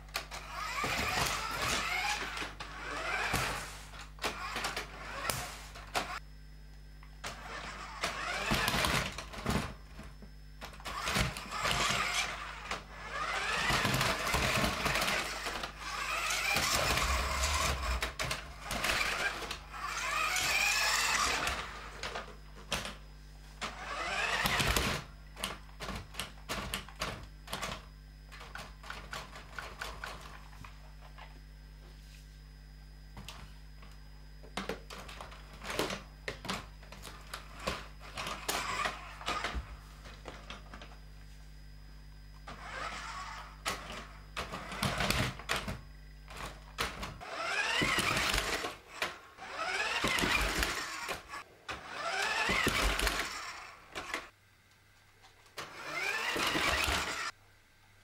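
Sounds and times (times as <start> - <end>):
toy truck motor whining: 0.0 - 6.2, 7.2 - 9.8, 10.6 - 23.0, 23.6 - 27.0, 34.6 - 40.9, 42.4 - 54.4, 55.6 - 57.4.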